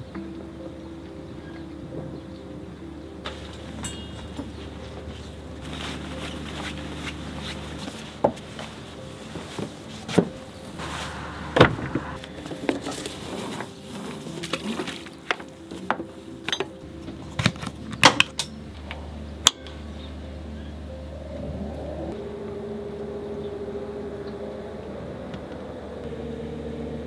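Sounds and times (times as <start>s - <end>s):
low steady hum: 0.0s - 27.0s
knocks and clinks of boat gear: 3.2s - 10.6s, 12.4s - 19.8s.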